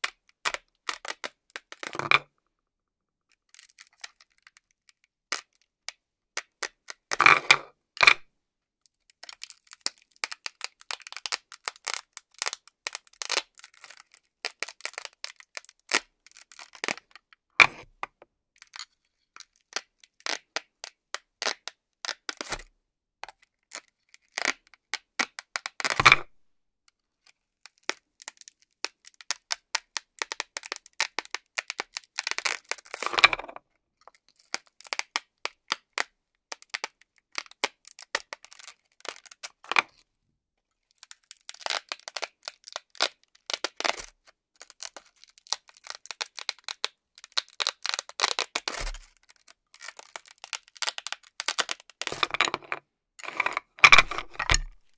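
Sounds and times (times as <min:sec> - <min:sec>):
velcro ripping apart: 0:41.0 - 0:52.3.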